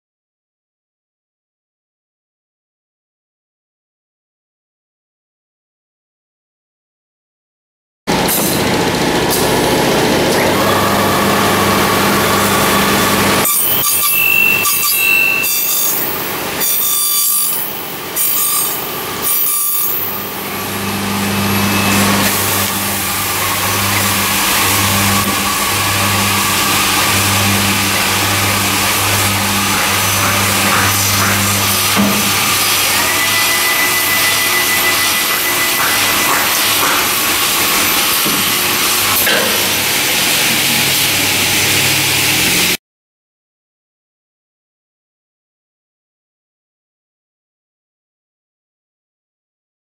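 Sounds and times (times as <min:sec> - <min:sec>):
cutter motors whirring: 0:08.8 - 0:42.7.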